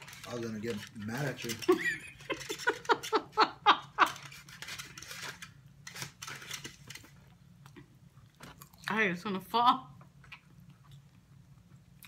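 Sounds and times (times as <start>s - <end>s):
person laughing: 1.6s - 4.3s.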